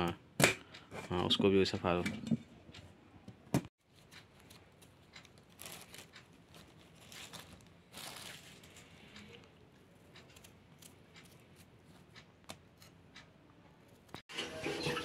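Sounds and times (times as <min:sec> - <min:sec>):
rustling and crinkling plastic bag: 0:03.8 - 0:09.4.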